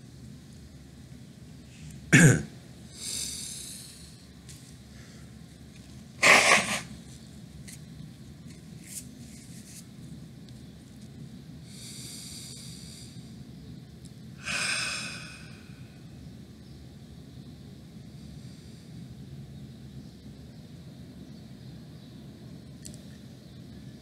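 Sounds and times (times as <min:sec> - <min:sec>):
high whistling breaths: 0:02.9 - 0:05.4, 0:11.6 - 0:13.4, 0:14.4 - 0:16.2.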